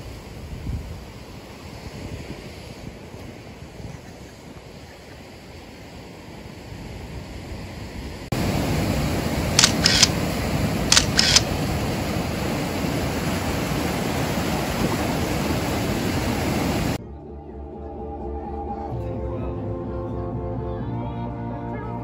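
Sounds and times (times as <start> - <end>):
surf rushing: 0.0 - 17.0
camera shutter clicks: 9.6 - 10.3, 10.9 - 11.5.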